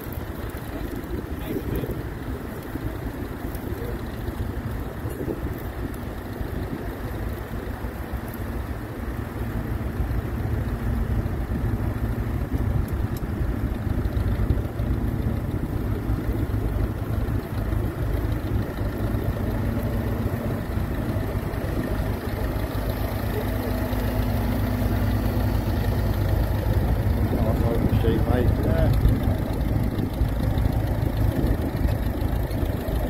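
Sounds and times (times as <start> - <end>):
tractor engine running: 0.0 - 33.0.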